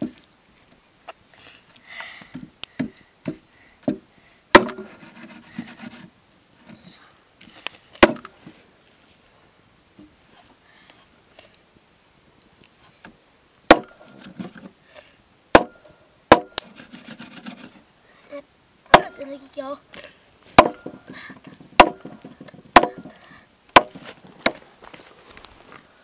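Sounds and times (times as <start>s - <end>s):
blade chopping wood: 2.3s - 5.8s, 8.0s - 8.3s, 13.7s - 14.6s, 15.5s - 17.6s, 18.9s - 19.2s, 20.5s - 24.6s
soft rustling: 4.8s - 13.1s, 24.0s - 26.0s.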